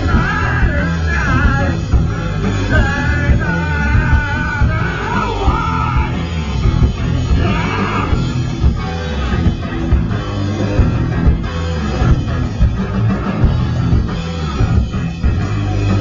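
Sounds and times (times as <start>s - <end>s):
person singing shouted vocals: 0.0s - 1.8s, 2.7s - 6.2s, 7.3s - 8.2s
drums: 0.0s - 16.0s
electric guitar: 0.0s - 16.0s.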